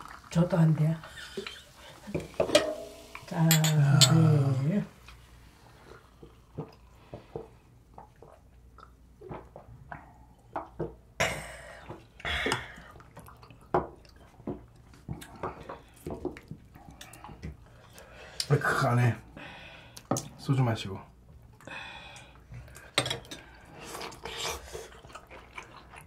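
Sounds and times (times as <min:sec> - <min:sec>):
metal ladle tapping pot: 0:02.4 - 0:03.7.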